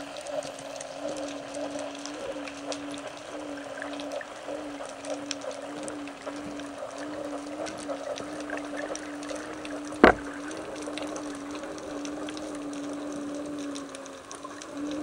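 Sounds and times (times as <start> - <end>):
faint crackling ticks: 0.0 - 15.0
low underwater hum: 0.0 - 15.0
sharp knock: 10.0 - 10.2.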